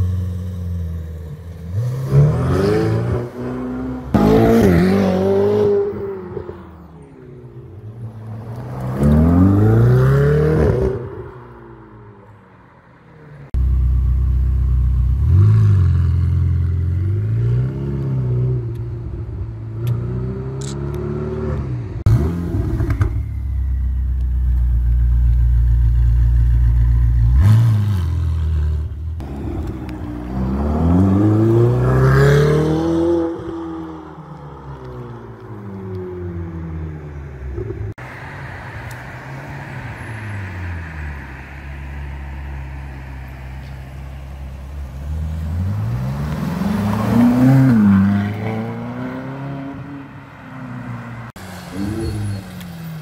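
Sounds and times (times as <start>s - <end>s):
engine revving: 1.6s - 6.4s, 27.0s - 33.9s, 45.2s - 50.0s.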